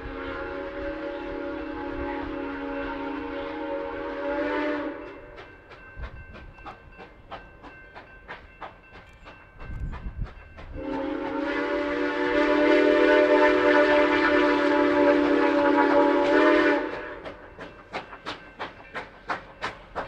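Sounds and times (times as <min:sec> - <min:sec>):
steam locomotive whistle: 0:00.0 - 0:06.2, 0:10.7 - 0:18.7.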